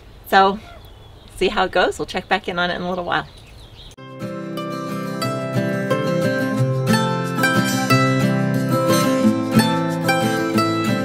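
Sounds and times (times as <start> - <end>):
plucked strings music: 4.0 - 11.0.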